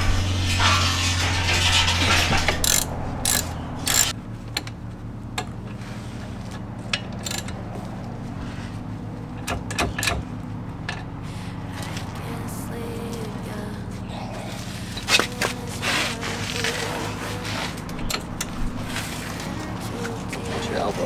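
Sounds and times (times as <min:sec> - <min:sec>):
tools being handled: 0:00.5 - 0:04.2, 0:06.9 - 0:07.8
ratchet wrench clicking: 0:02.6 - 0:04.2, 0:07.2 - 0:07.6.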